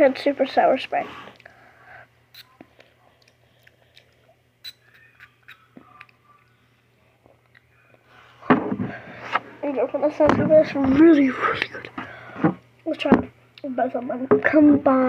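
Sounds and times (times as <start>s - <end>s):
lip smacking: 2.3s - 6.6s
wet mouth sounds: 2.3s - 6.6s.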